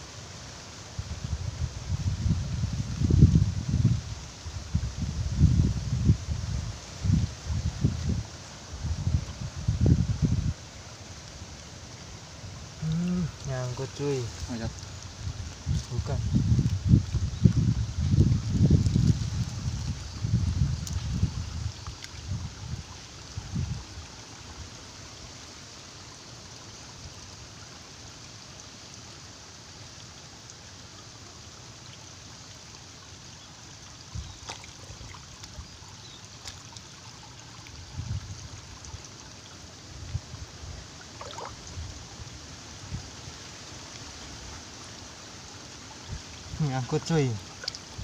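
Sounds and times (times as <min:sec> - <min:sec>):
stream water trickling: 0:00.0 - 0:48.0
hand splashing in water: 0:41.2 - 0:41.6.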